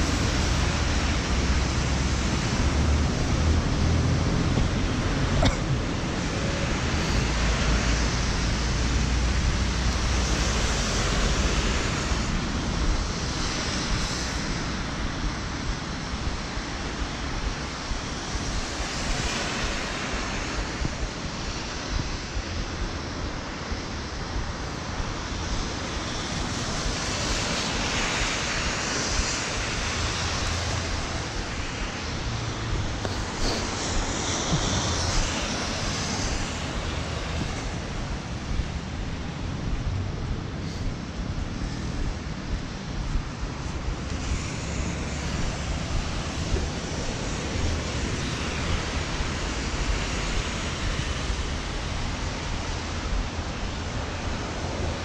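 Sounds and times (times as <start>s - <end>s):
rain hissing: 0.0s - 22.5s, 23.2s - 55.0s
tyres on wet road: 0.0s - 55.0s
wind rumble on microphone: 0.0s - 55.0s.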